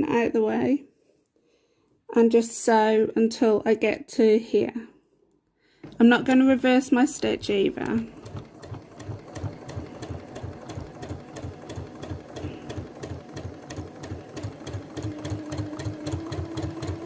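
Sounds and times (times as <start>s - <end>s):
sewing machine stitching: 7.2s - 17.0s.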